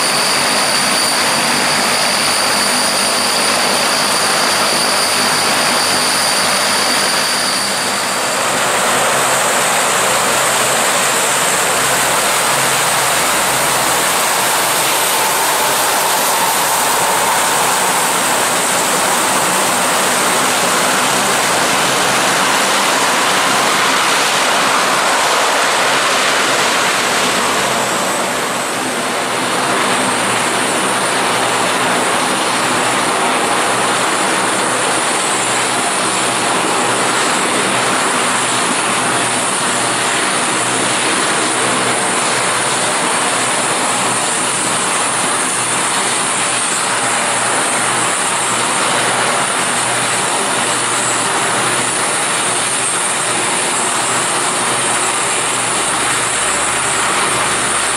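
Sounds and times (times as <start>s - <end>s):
high turbine whine: 0.0s - 57.9s
turboprop aircraft taxiing: 0.0s - 57.9s.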